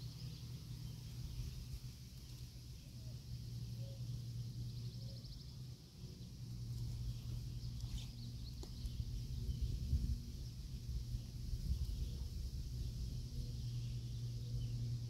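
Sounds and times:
faint bird chirps: 0.0 - 9.8
steady low rumble: 0.0 - 15.0.

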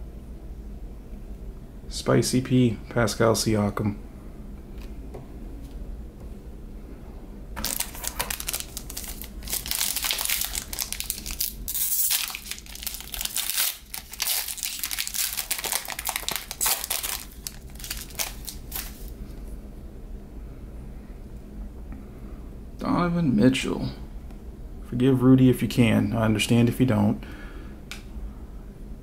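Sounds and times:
foil wrapper crinkling: 7.6 - 19.2.

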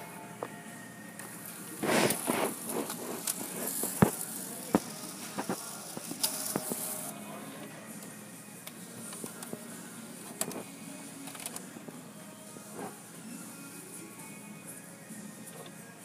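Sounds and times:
printer paper feed whirring: 1.2 - 8.1.

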